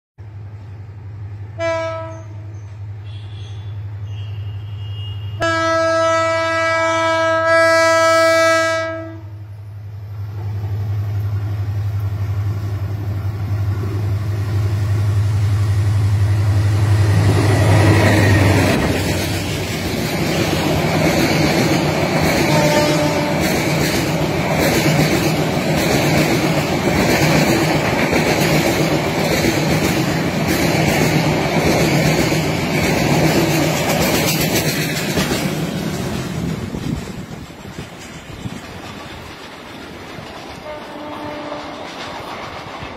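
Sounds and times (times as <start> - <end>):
train horn blasts: 1.5 - 9.5, 22.4 - 23.6, 40.6 - 41.9
train rushing rumble: 5.4 - 42.9.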